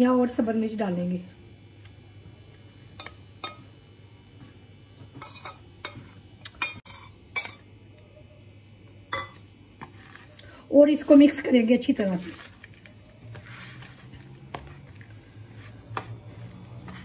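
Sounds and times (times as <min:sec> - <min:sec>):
metal spoon clinking on steel bowl: 0:09.1 - 0:09.4.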